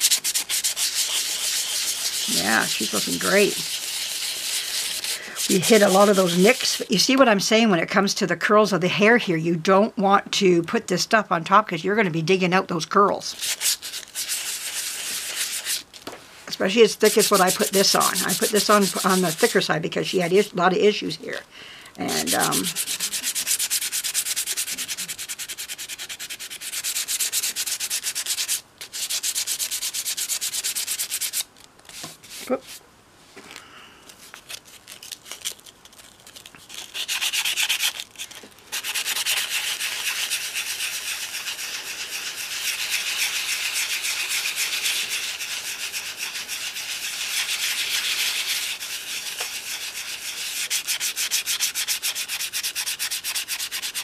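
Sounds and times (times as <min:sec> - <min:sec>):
sandpaper rubbing: 0:00.0 - 0:06.9, 0:13.3 - 0:15.9, 0:16.9 - 0:19.7, 0:22.1 - 0:32.8, 0:34.2 - 0:54.0.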